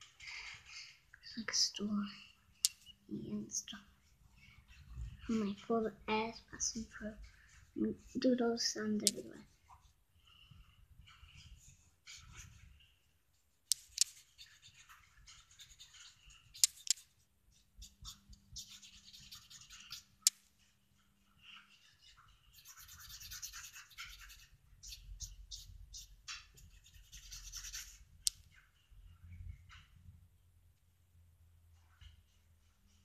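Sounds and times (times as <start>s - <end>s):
cotton bud scratchy rubbing: 13.7s - 20.3s, 22.1s - 28.3s.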